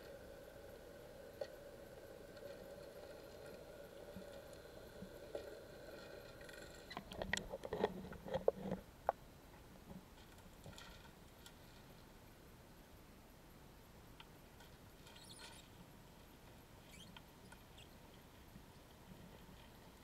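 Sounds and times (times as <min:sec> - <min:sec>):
faint electric motor hum: 0:00.0 - 0:10.0.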